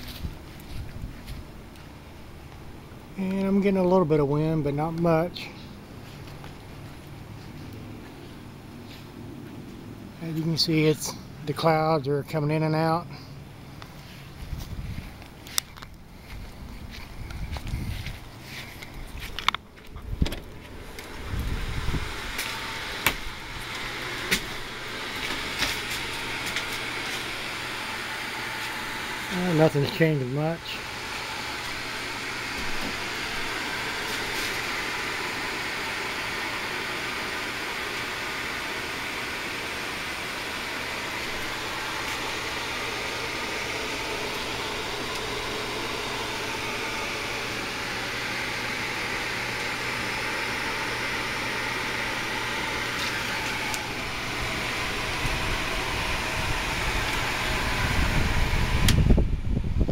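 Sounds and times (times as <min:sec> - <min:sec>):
fan-like whir: 0:00.0 - 0:59.9
low rumble on microphone: 0:16.1 - 0:19.3.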